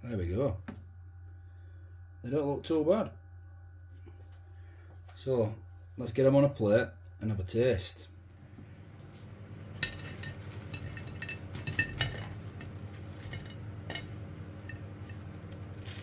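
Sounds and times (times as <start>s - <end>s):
low steady hum: 0.0s - 16.0s
metal rack clinking on plate: 9.8s - 15.3s.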